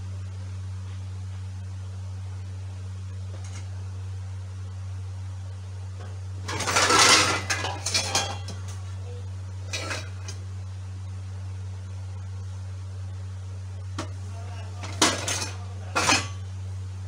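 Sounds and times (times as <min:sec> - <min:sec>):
steady low hum: 0:00.0 - 0:17.0
metal cookware clattering: 0:06.4 - 0:08.8, 0:09.6 - 0:10.4, 0:14.0 - 0:14.2, 0:14.8 - 0:16.5.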